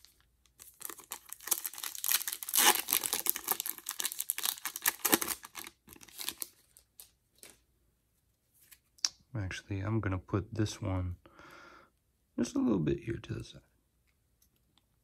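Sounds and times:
foil wrapper tearing and crinkling: 0.0 - 6.8.

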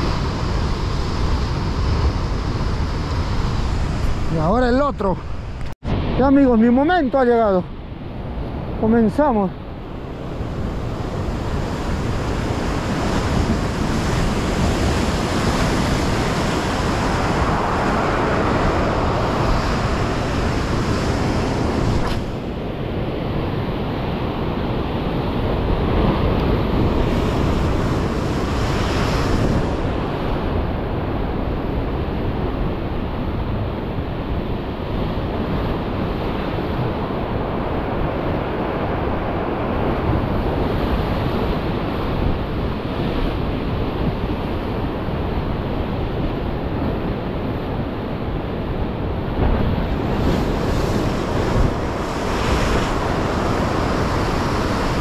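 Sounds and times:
wind buffeting microphone: 0.0 - 55.0
surf breaking over rocks: 10.5 - 22.5, 48.8 - 55.0.

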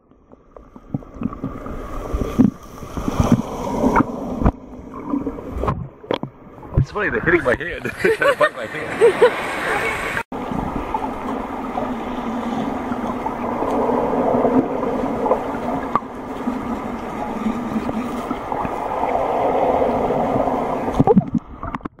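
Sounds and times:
muffled underwater droning: 9.3 - 22.0.

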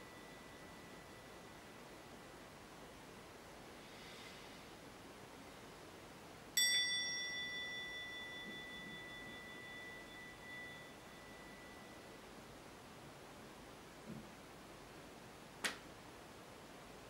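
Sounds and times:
hand bell ringing: 6.6 - 12.2.

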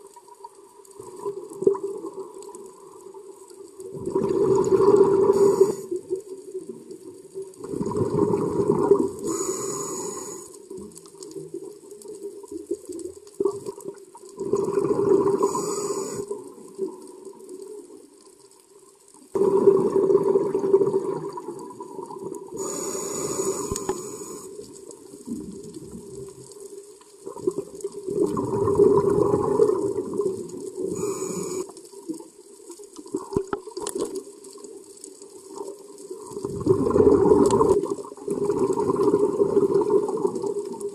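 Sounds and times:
underwater water noise: 0.0 - 40.9
exhaust bubbles underwater: 0.9 - 2.6, 3.8 - 9.8, 12.6 - 17.0, 19.3 - 26.5, 27.2 - 31.7, 36.1 - 40.9
regulator hiss: 5.2 - 6.0, 9.2 - 10.6, 15.4 - 16.3, 22.6 - 24.6, 30.8 - 31.7.

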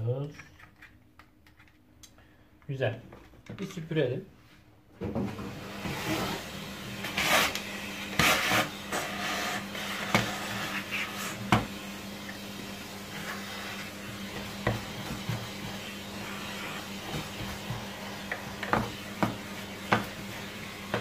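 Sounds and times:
vacuum cleaner humming: 5.0 - 21.0.

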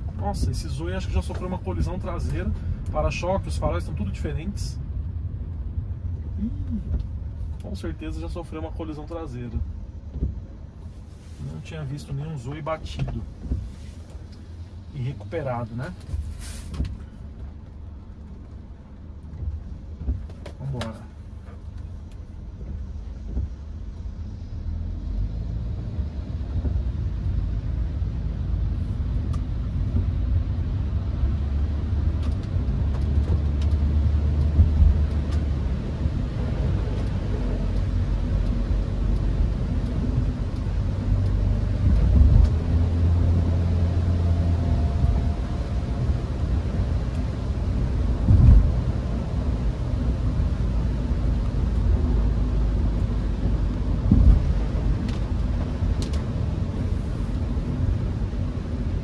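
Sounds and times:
car engine and tyre rumble: 0.0 - 59.0
thumps from road surface: 48.2 - 48.7, 54.0 - 54.6.

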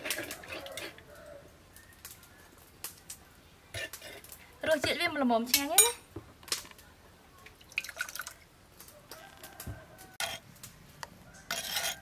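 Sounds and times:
sauce dripping and trickling: 7.5 - 8.5.

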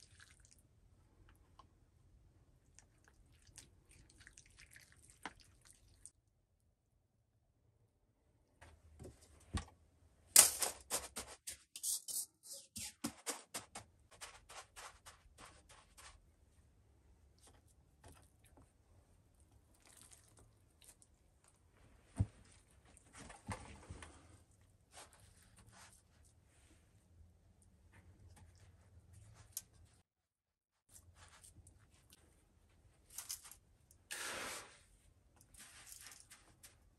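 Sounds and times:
soft handling sounds: 35.0 - 36.9.

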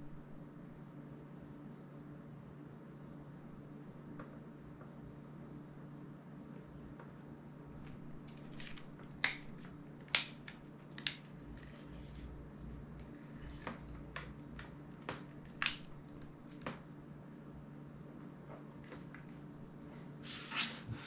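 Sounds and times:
low steady hum: 0.0 - 21.0
sharp plastic snaps: 7.9 - 11.7, 13.6 - 16.8.

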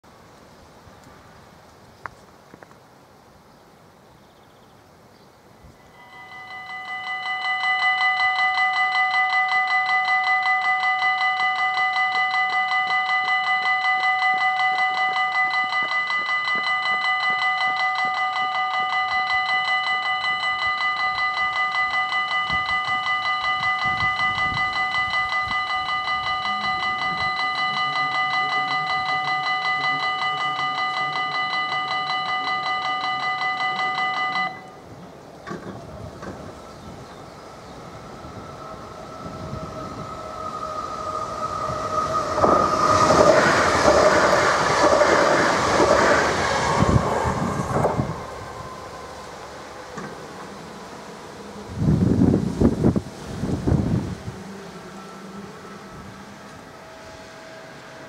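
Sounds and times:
level crossing warning bell: 5.6 - 58.0.

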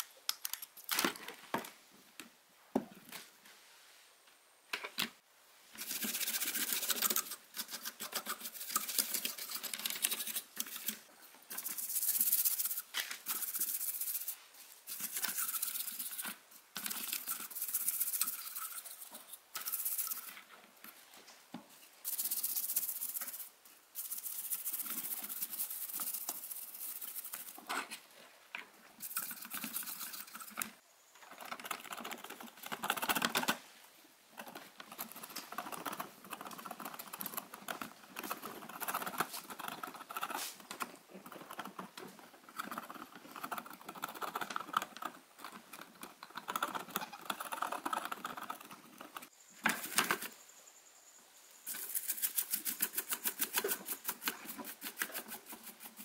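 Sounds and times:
brush scrubbing circuit board: 5.8 - 20.4, 22.0 - 27.6, 29.0 - 30.8, 35.0 - 45.6.

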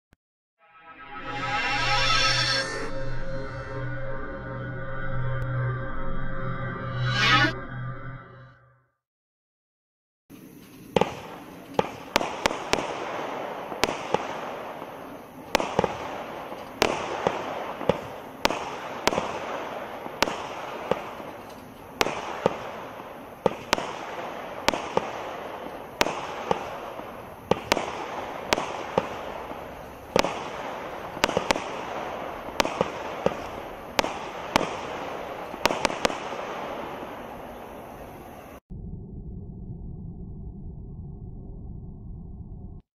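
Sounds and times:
firework bangs: 10.3 - 38.6
firework hiss: 10.3 - 38.6.

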